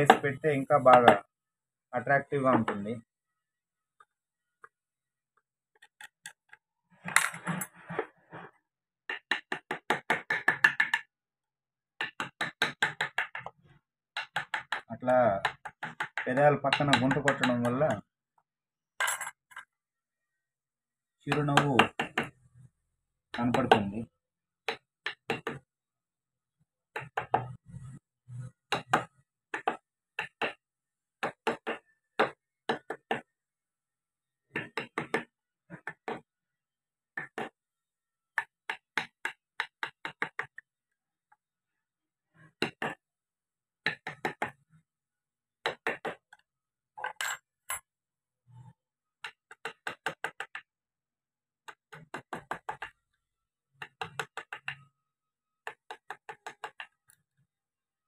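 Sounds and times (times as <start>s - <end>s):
chisel tapped with mallet into wood: 0.0s - 0.2s, 0.9s - 1.3s, 9.1s - 11.1s, 12.0s - 13.6s, 14.2s - 18.0s, 21.3s - 22.4s, 23.3s - 24.0s, 24.6s - 25.7s, 26.9s - 27.6s, 28.7s - 33.4s, 34.4s - 36.3s, 37.1s - 37.6s, 38.3s - 40.7s, 42.5s - 43.1s, 43.8s - 44.6s, 45.6s - 46.5s, 49.2s - 50.7s, 51.6s - 53.0s, 53.8s - 54.9s, 55.6s - 57.2s.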